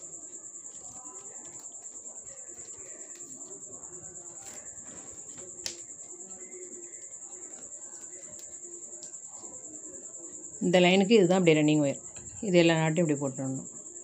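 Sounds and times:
plastic wire strands clicking: 0:00.7 - 0:09.3.

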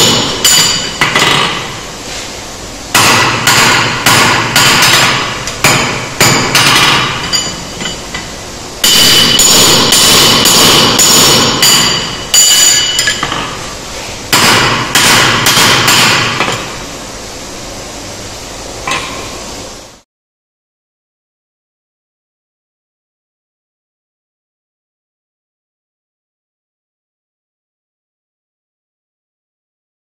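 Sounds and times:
hammer striking steel on anvil: 0:00.0 - 0:01.8, 0:02.9 - 0:13.6, 0:14.3 - 0:16.8, 0:18.8 - 0:19.4.

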